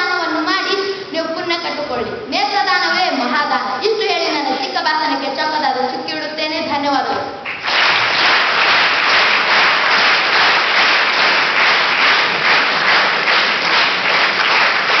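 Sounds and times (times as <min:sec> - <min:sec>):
audience applauding: 0:07.4 - 0:15.0.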